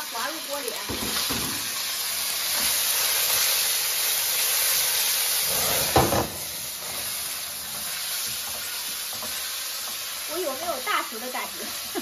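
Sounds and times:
chicken sizzling in hot oil: 0:00.0 - 0:12.0
flames flaring up: 0:01.0 - 0:08.5.

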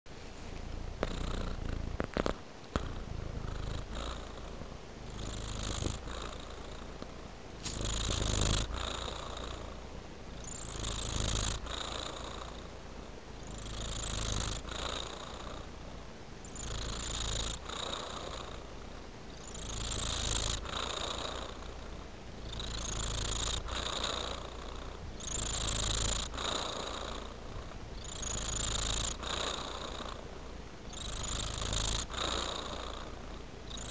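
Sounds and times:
cat purring: 0:00.2 - 0:33.9.

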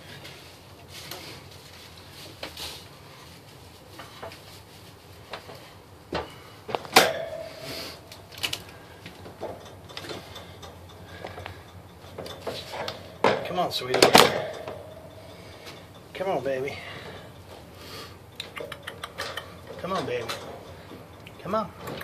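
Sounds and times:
clicks and knocks of metal pole: 0:06.1 - 0:16.2
ringing metallic clank: 0:06.9 - 0:08.3, 0:09.3 - 0:17.6.

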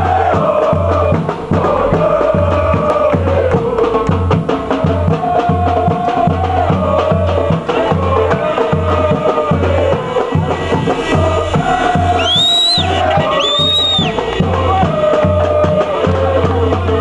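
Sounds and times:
bass drum beating: 0:00.0 - 0:17.0
crowd chanting in unison: 0:00.0 - 0:17.0.

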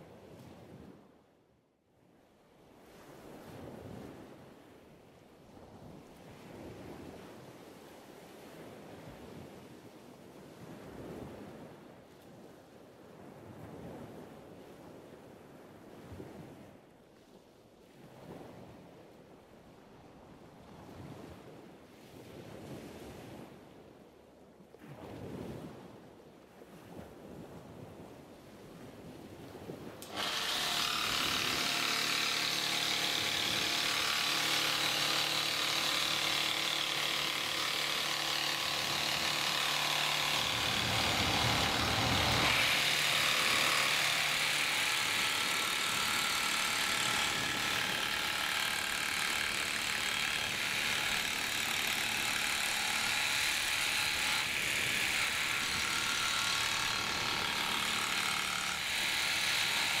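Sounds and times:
jigsaw cutting wood: 0:30.0 - 1:00.0.

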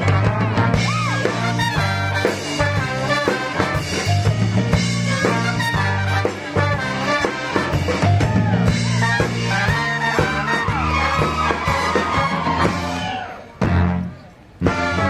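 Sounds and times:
upbeat swing music with brass: 0:00.0 - 0:15.0.

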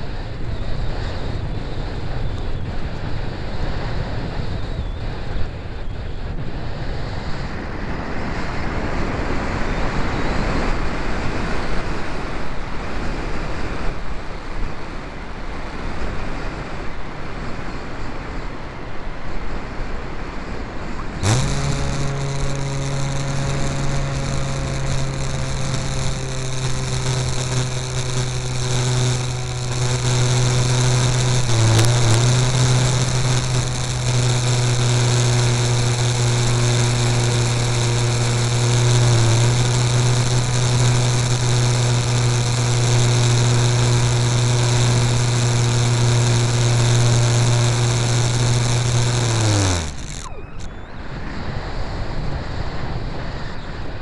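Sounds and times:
model airplane motor humming: 0:00.0 - 0:14.8, 0:21.0 - 0:52.0.

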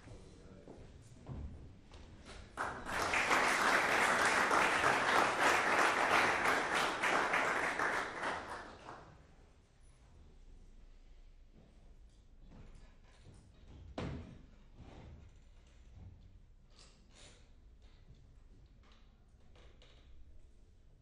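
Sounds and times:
audience applauding: 0:02.6 - 0:09.1.

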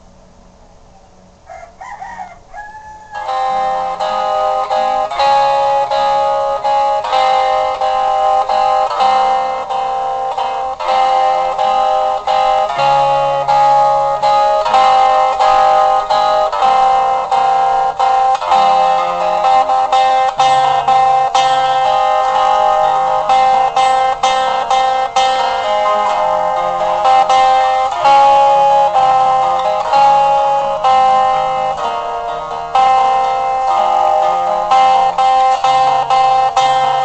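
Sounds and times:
rooster crowing: 0:00.6 - 0:04.0
plucked-string music: 0:03.1 - 0:37.0.

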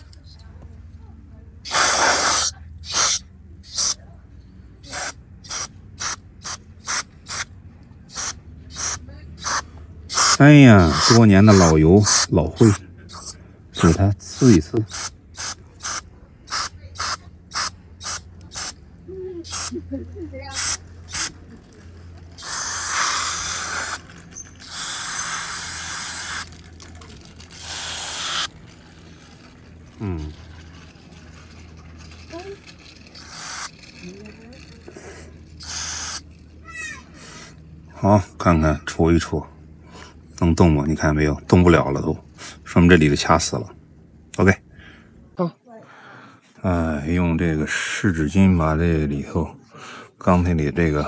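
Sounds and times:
aerosol spray hissing squirts: 0:01.7 - 0:04.0, 0:04.9 - 0:07.5, 0:08.1 - 0:11.7, 0:14.3 - 0:18.8, 0:19.4 - 0:19.8, 0:20.5 - 0:21.4, 0:22.4 - 0:24.0, 0:24.6 - 0:26.5, 0:27.6 - 0:28.5, 0:33.2 - 0:33.8, 0:35.6 - 0:36.2.

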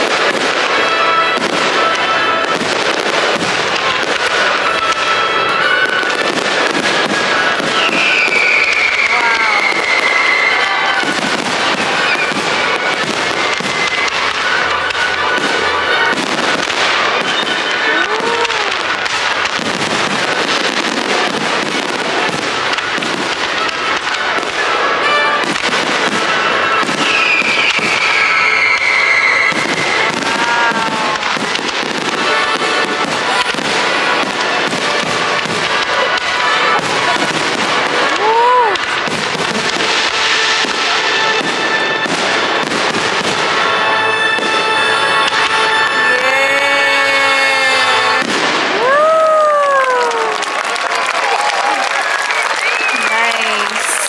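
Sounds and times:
firework falling whistle: 0:00.0 - 0:54.0
fireworks crackling and popping: 0:00.0 - 0:54.0.

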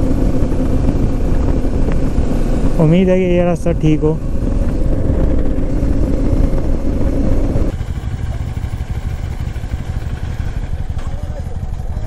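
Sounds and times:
wind rumble on microphone: 0:00.0 - 0:07.8
motorcycle engine cruising: 0:00.0 - 0:12.0
motorcycle idling: 0:00.0 - 0:12.0.

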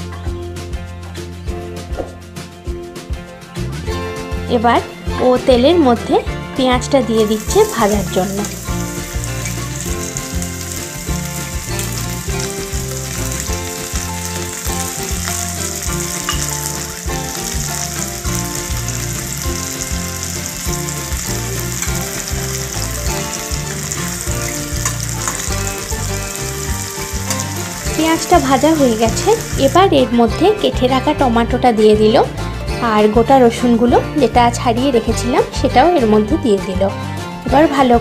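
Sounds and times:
background music: 0:00.0 - 0:38.0
onions sizzling in oil: 0:07.1 - 0:30.1
spatula stirring: 0:07.4 - 0:29.8.

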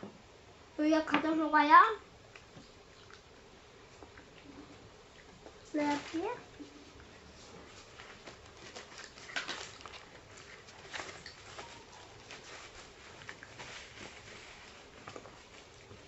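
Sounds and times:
paper wrappers rustling and crinkling: 0:05.6 - 0:16.0.

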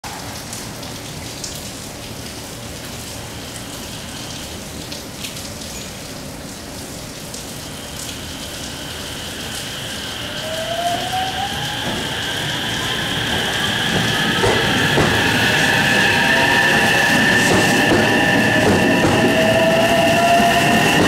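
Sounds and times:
steady rain: 0:00.0 - 0:21.0
electric train motors whining: 0:07.7 - 0:21.0.

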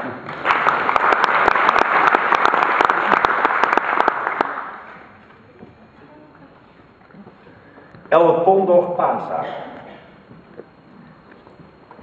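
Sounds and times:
audience applauding: 0:00.2 - 0:05.1.

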